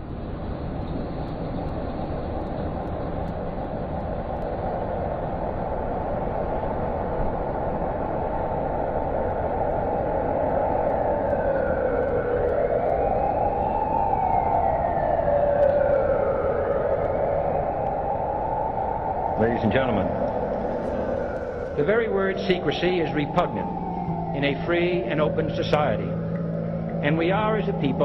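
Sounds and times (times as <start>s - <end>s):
siren-like wail: 6.8s - 28.0s
hissing rumble: 11.3s - 28.0s.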